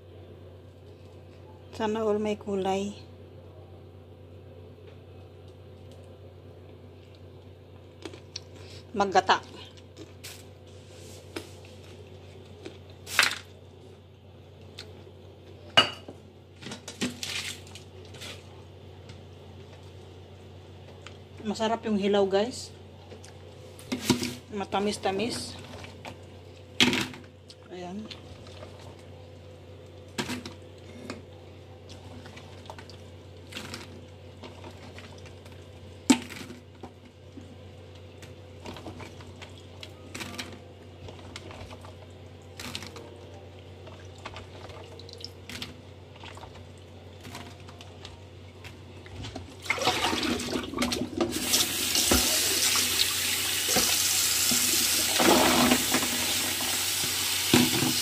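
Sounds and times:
tap water running into bowl: 49.7 - 58.0.

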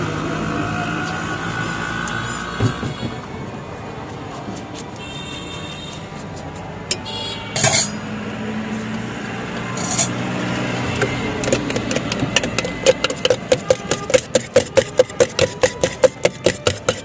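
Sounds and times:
metal spoon clinking against jar: 7.6 - 8.0, 11.4 - 17.0.

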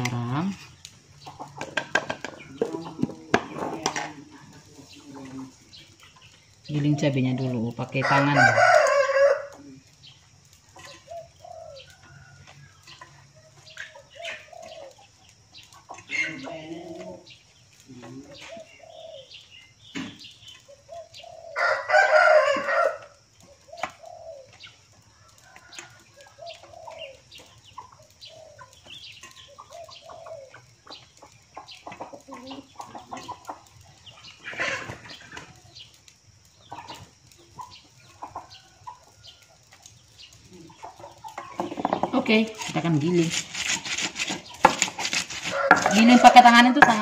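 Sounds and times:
chickens clucking: 0.0 - 47.0
rooster crowing: 8.0 - 9.6, 21.2 - 23.2, 44.6 - 47.0.

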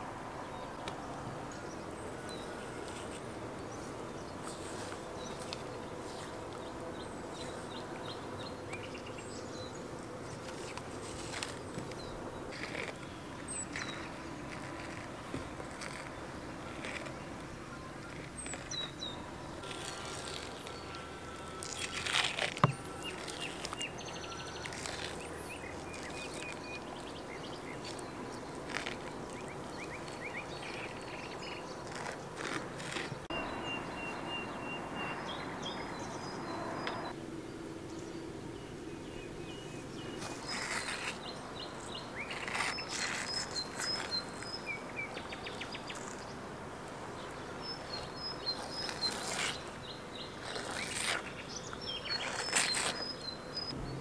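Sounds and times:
birds chirping: 0.0 - 54.0
steady background hiss: 0.0 - 54.0.

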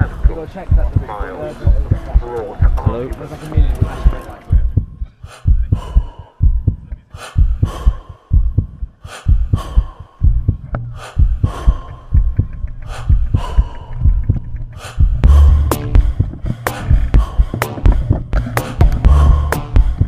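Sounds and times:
music with heavy drum beat: 1.7 - 3.0, 3.6 - 5.8, 10.2 - 20.0.

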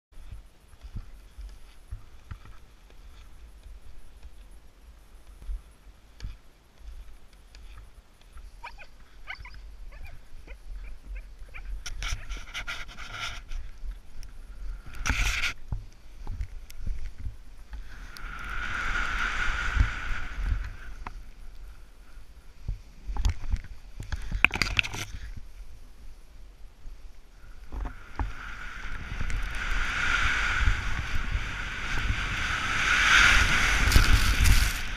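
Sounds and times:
wind rumbling on microphone: 0.1 - 34.9
snowboard scraping on snow: 16.9 - 21.4, 27.8 - 34.9.

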